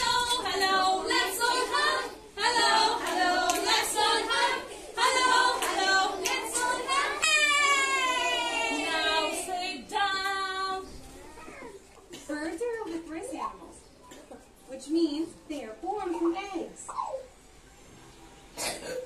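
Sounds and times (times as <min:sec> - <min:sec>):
children singing in unison: 0:00.0 - 0:09.9.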